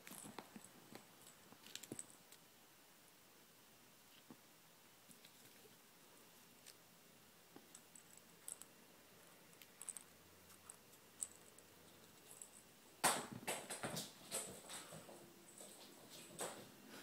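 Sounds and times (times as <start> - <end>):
kitten thumping and rustling: 13.0 - 16.8.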